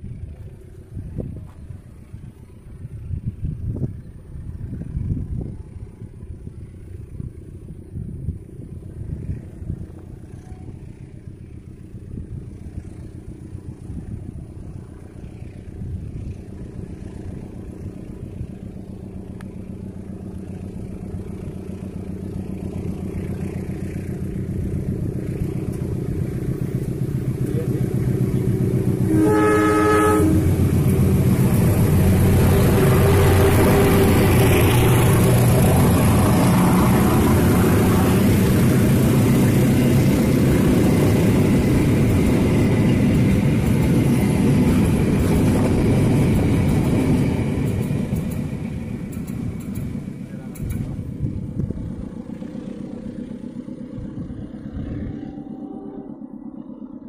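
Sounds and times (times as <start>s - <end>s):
locomotive engine rumble: 0.0s - 57.0s
train rail noise: 0.0s - 57.0s
train horn: 28.8s - 31.1s, 32.4s - 34.4s, 54.8s - 56.5s.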